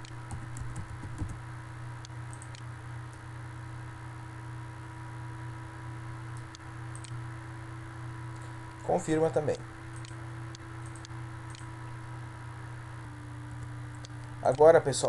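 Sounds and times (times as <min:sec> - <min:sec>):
electrical hum and hiss: 0:00.0 - 0:15.0
computer mouse clicks: 0:02.0 - 0:02.7, 0:06.4 - 0:07.2, 0:09.9 - 0:11.7.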